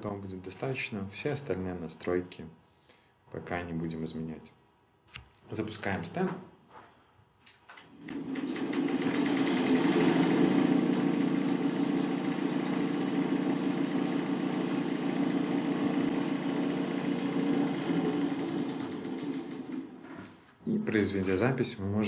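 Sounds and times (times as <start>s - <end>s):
electric motor hum with rattle: 7.9s - 20.2s.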